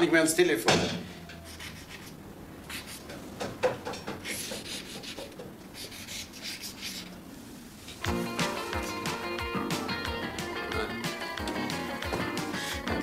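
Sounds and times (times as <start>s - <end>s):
drawing tool scratching paper: 1.5s - 2.1s, 2.7s - 3.1s, 4.2s - 7.1s.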